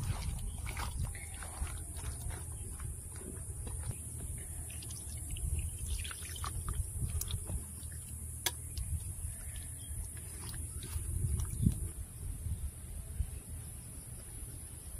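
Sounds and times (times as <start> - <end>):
wet squelching of kneading: 0.0 - 2.8, 3.7 - 11.9.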